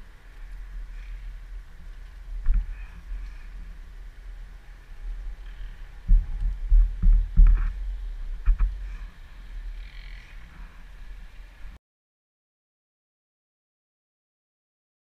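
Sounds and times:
low thuds and scuffs: 6.1 - 8.9.

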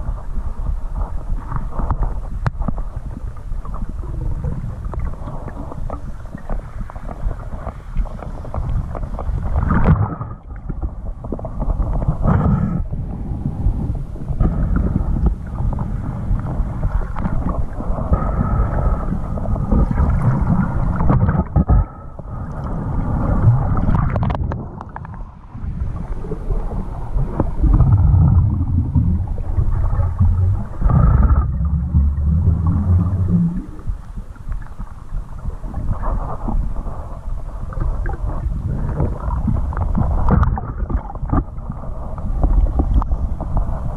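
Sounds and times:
underwater rumble and gurgling: 0.0 - 43.9.

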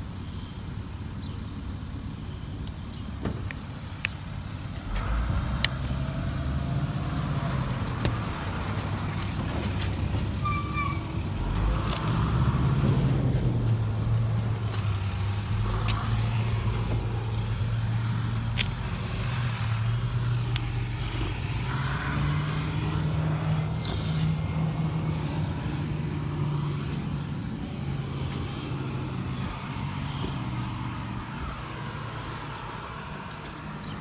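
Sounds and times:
vehicle engine running: 11.3 - 34.0
light ticks: 20.5 - 20.7.

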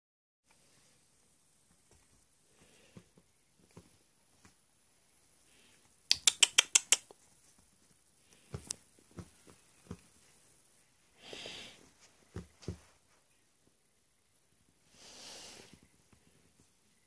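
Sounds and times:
sharp clicks: 6.1 - 7.2.

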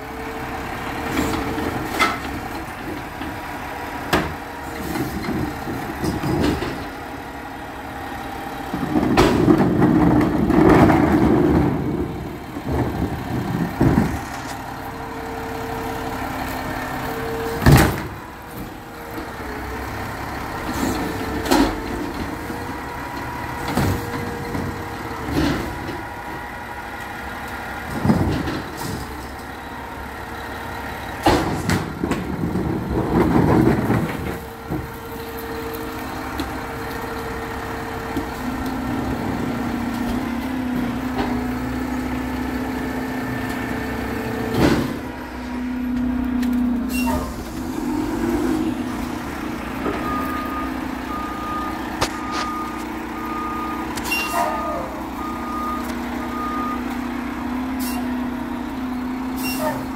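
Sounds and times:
garbage truck engine running: 0.0 - 59.9
reversing alarm beeping: 50.0 - 57.0.

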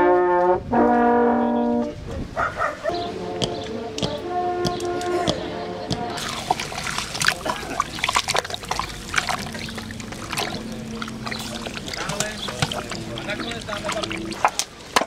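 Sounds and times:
spitting crackles: 6.2 - 14.7.

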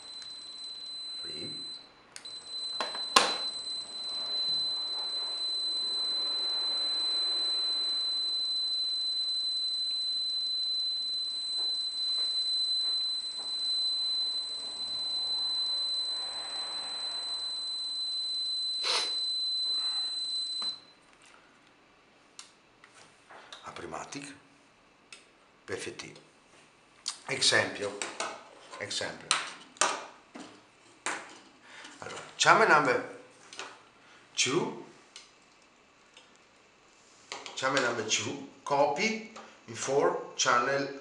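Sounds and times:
high-pitched buzzer beep: 0.0 - 20.9.

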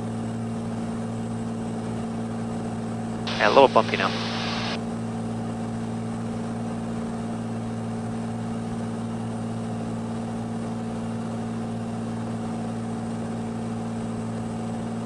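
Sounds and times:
airplane engine droning in cabin: 0.0 - 4.8.

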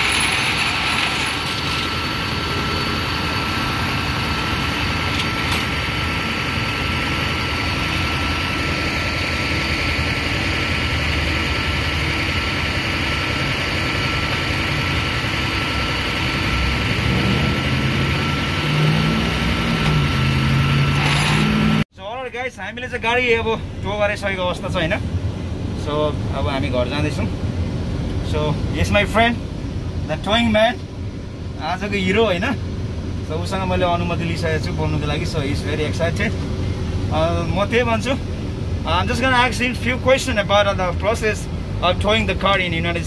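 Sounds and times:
truck engine rumbling: 0.0 - 43.0.

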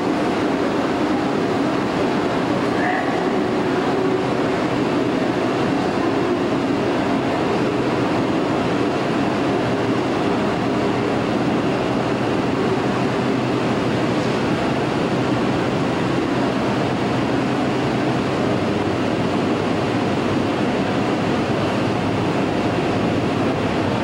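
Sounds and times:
subway car rumbling on rails: 0.0 - 24.0.

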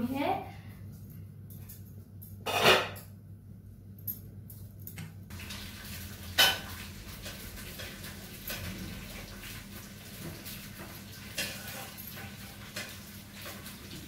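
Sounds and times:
metal pots and utensils clattering: 2.4 - 3.1, 5.3 - 9.6, 10.2 - 14.0.

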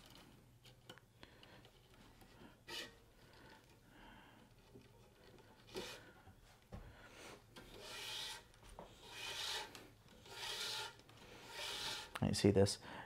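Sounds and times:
string rubbing through racquet strings: 1.7 - 3.8, 4.5 - 6.3, 7.4 - 12.3.

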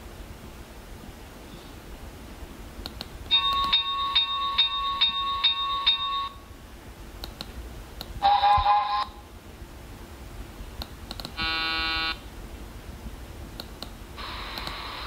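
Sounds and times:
ringing bell-like tone: 3.3 - 6.4.

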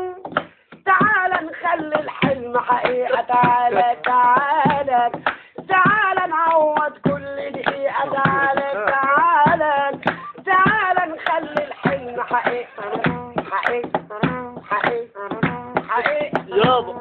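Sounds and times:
sharp percussive hits: 0.2 - 17.0
man singing folk melody: 16.0 - 17.0.

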